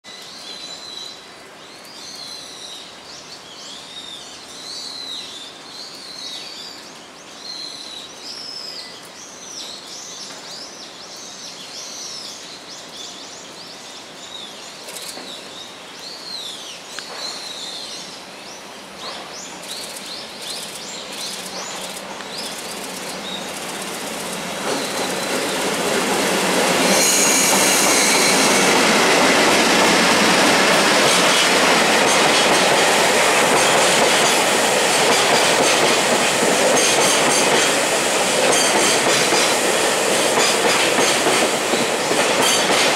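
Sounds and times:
train wheels squealing: 21.4 - 32.9, 40.4 - 42.9.

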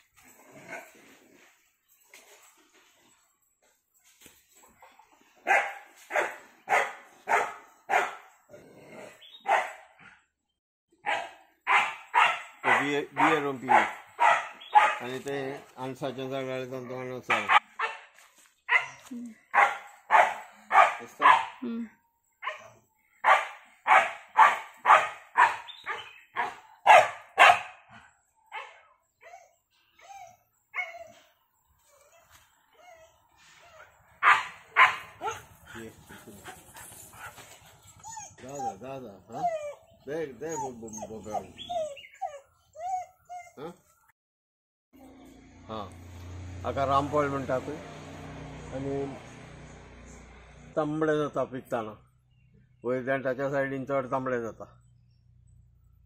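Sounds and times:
dog barking: 5.4 - 8.3, 9.4 - 10.0, 11.0 - 15.1, 17.3 - 18.1, 18.7 - 21.6, 22.4 - 28.9, 34.2 - 35.6.

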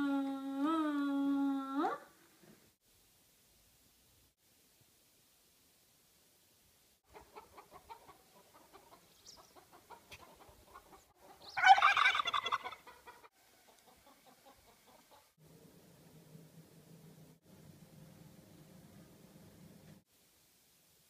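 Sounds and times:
turkey and chickens clucking: 7.1 - 15.3.

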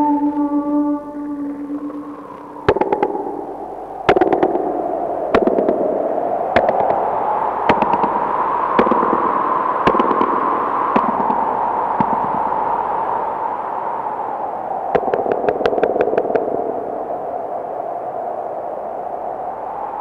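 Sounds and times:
hissing electronic drone: 0.0 - 13.7
crackling pops and clicks: 1.8 - 12.5, 15.0 - 16.6.

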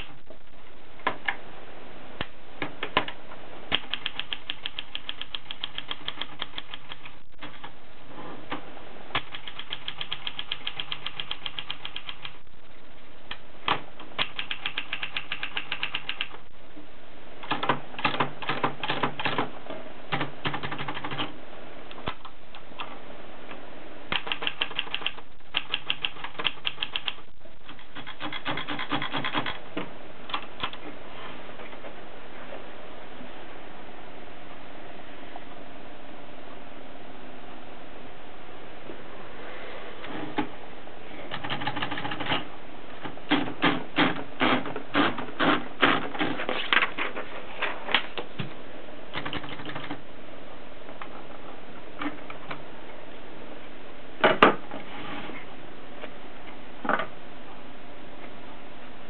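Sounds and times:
typewriter keys clacking: 3.7 - 7.7, 9.2 - 12.4, 14.1 - 16.4, 24.1 - 29.6, 41.3 - 42.4.

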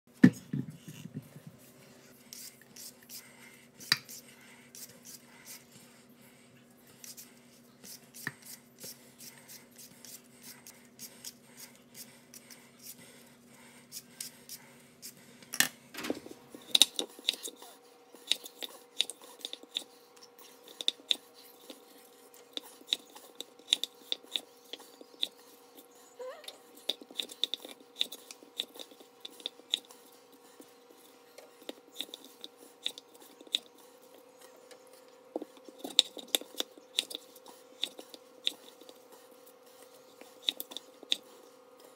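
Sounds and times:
vegetable peeler scraping potato: 16.6 - 34.2, 35.6 - 41.3.

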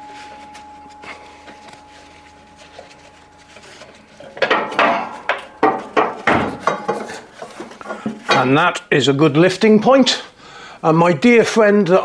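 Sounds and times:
metal clanking and clinking: 2.7 - 8.6.

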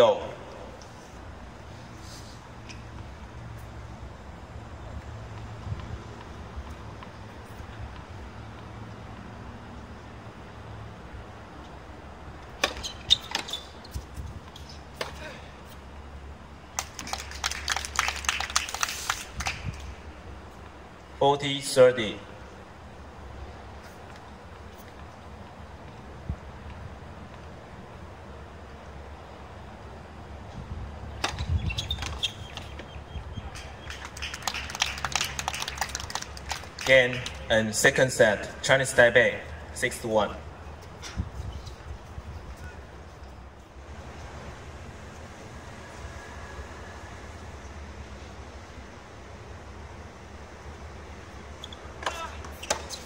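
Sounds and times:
tennis ball hit by rackets: 12.5 - 13.5, 14.5 - 15.4, 31.2 - 32.9, 52.0 - 53.0
small crowd clapping: 16.8 - 19.9, 33.5 - 37.5.

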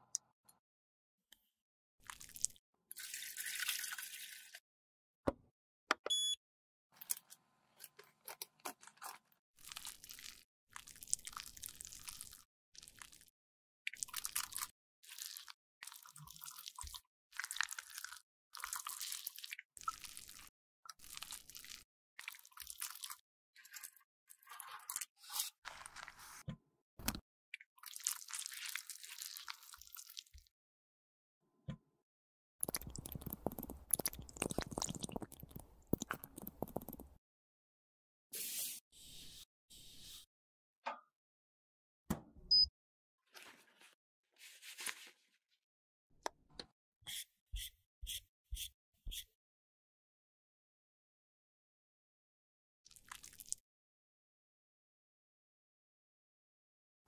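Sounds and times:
lipstick crunching and squishing: 32.6 - 37.1.

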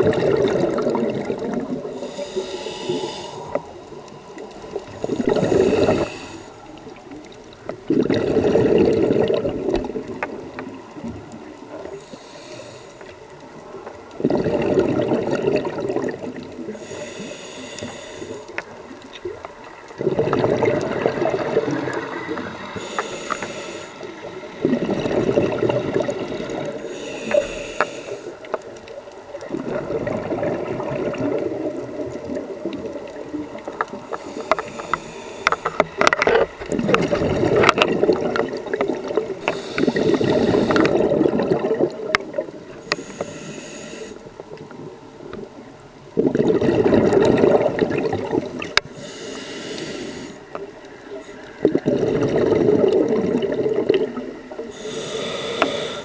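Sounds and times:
exhaled bubbles rushing: 0.0 - 2.1, 3.2 - 12.0, 13.5 - 16.7, 18.6 - 22.9, 24.2 - 27.4, 29.0 - 34.1, 36.0 - 42.8, 44.5 - 48.8, 51.1 - 54.8
regulator inhale hiss: 1.9 - 7.0, 11.8 - 13.2, 16.7 - 18.8, 22.2 - 24.5, 26.4 - 28.6, 34.0 - 36.0, 39.4 - 41.0, 42.7 - 44.4, 48.8 - 51.6, 54.6 - 56.0.

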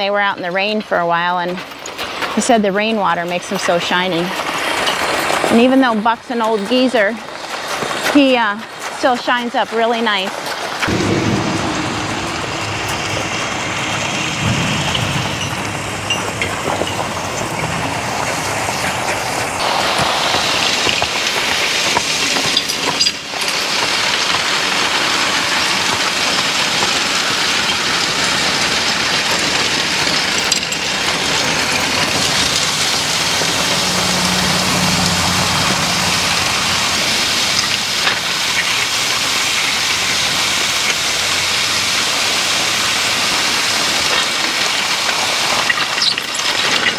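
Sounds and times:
harrow scraping through gravel: 1.1 - 10.9, 15.8 - 46.9.

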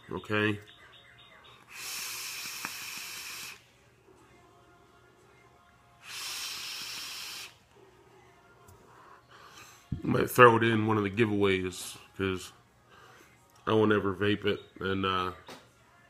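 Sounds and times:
air drawn through e-cigarette: 1.7 - 3.6, 6.0 - 7.6
breath blowing out vapor: 1.7 - 3.6, 6.0 - 7.6.

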